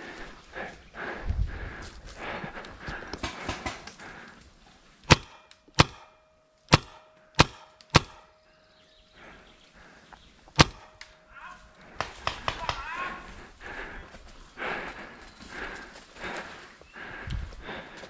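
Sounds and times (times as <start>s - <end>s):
paintball marker shots: 5.1s - 6.1s, 6.7s - 8.3s, 10.6s - 11.1s.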